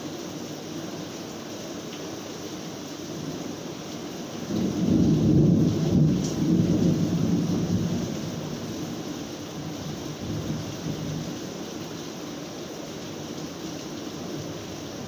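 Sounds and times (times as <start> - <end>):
steady rain: 0.0 - 15.0
thunder rumbling: 4.5 - 8.7.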